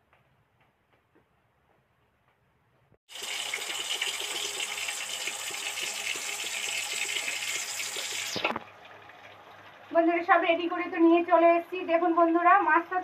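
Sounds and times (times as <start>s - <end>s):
fish frying in hot oil: 3.1s - 8.6s.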